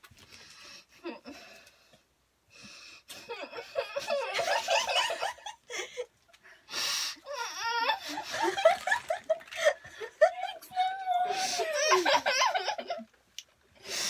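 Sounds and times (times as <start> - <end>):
girls laughing: 3.3 - 6.1, 7.4 - 13.1.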